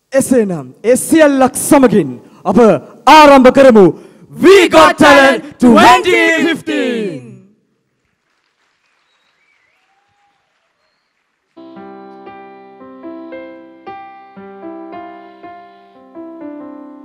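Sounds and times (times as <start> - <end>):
piano chords: 11.6 - 17.0.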